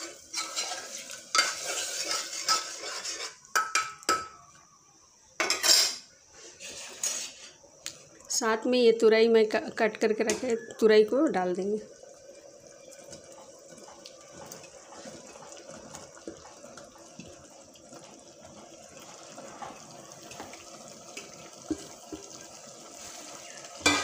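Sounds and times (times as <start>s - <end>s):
watery hiss of simmering food: 0.0s - 3.5s, 6.0s - 8.5s, 11.5s - 24.0s.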